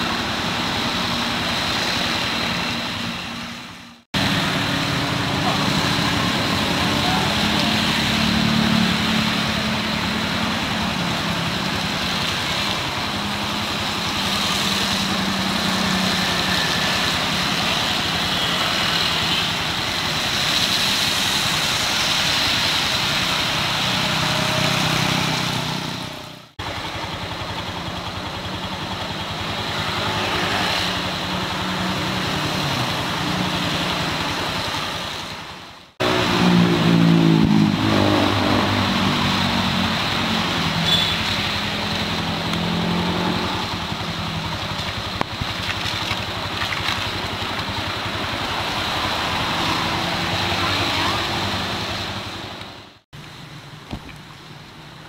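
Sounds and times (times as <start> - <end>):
car engine passing: 36.0 - 40.8, 47.9 - 52.6.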